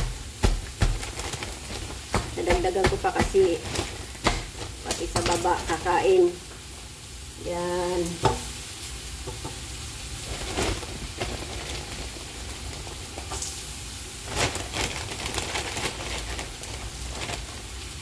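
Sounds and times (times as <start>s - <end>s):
clumps knocking into pot: 0.0s - 5.8s
leaves sizzling in hot oil: 0.0s - 18.0s.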